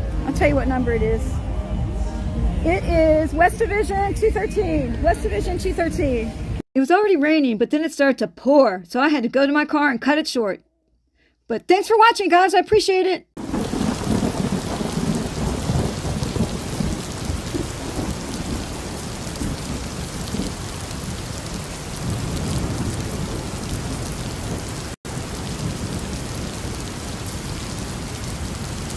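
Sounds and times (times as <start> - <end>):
heavy rain: 13.4 - 28.9
thunder rumbling: 13.4 - 28.9.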